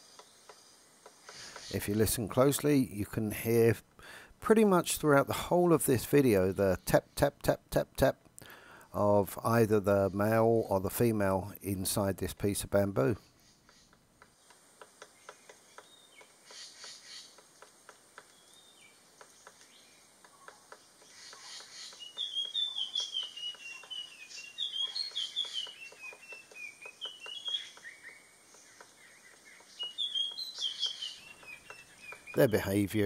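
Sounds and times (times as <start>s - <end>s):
bird tapping on bamboo: 0.0s - 2.7s, 13.6s - 24.2s, 24.8s - 32.8s
high bird chirping: 18.3s - 33.0s.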